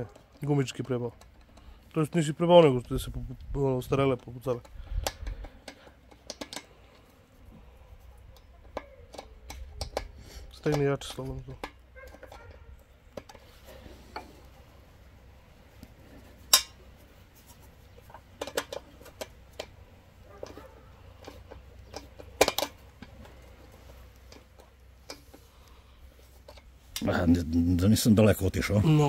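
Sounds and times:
spanner clicking against metal nut: 8.4 - 11.0.

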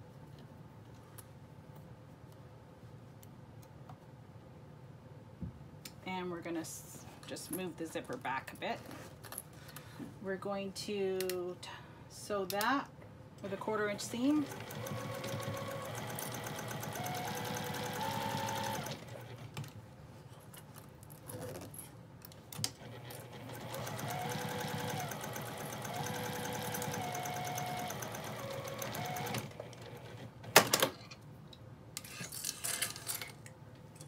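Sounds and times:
sewing machine motor whine: 13.5 - 19.5, 22.8 - 30.3.

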